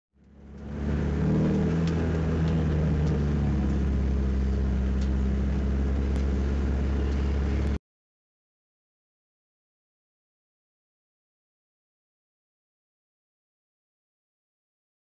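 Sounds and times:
race car engine running: 0:00.2 - 0:07.8.

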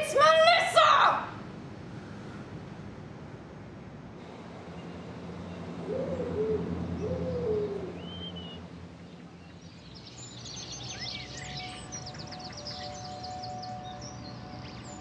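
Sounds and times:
low steady hum: 0:00.0 - 0:15.0
small birds twittering: 0:04.6 - 0:15.0
owl hooting: 0:05.8 - 0:08.5.

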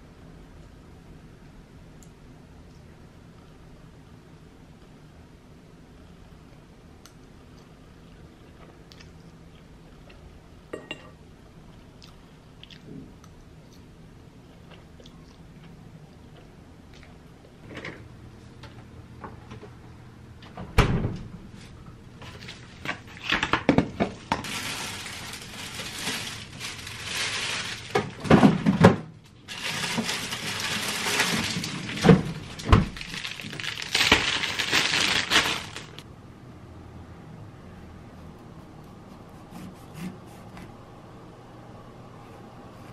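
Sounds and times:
dishes and cutlery clinking: 0:10.7 - 0:11.2.

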